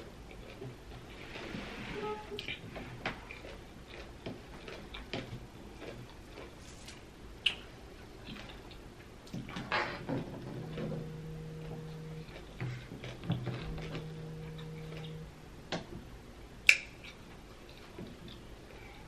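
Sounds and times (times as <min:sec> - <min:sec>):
chewing crisp pickle: 0:00.0 - 0:01.1, 0:02.4 - 0:09.6, 0:10.7 - 0:15.3, 0:16.6 - 0:18.8
low steady hums: 0:00.0 - 0:19.0
mouth clicks: 0:07.4 - 0:07.7, 0:16.6 - 0:17.2.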